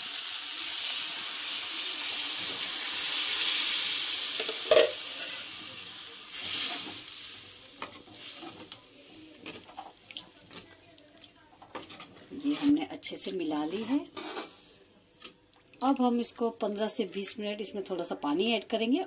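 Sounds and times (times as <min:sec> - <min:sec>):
batter sizzling in a hot pan: 0:00.0 - 0:11.0.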